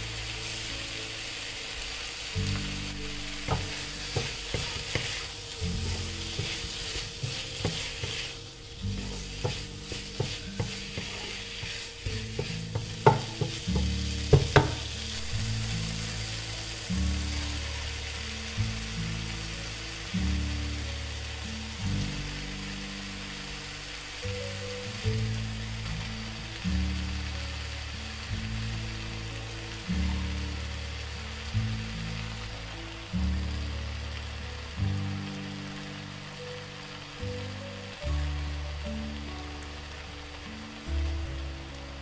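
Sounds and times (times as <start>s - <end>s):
food sizzling in a pan: 0.0s - 42.0s
low background music: 0.0s - 42.0s
spatula knocking against pan: 9.0s - 11.3s, 12.3s - 14.9s.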